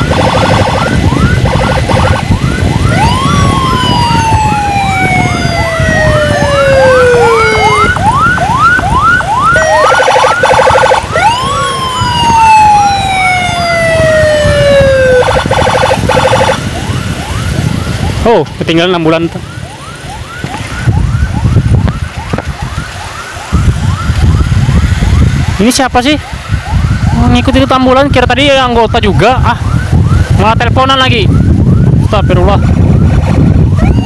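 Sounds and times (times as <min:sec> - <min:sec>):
short siren buzzing bursts: 0:00.0 - 0:18.2
engine and road rumble: 0:00.0 - 0:34.0
siren wailing: 0:00.0 - 0:34.0
siren yelping: 0:00.0 - 0:34.0.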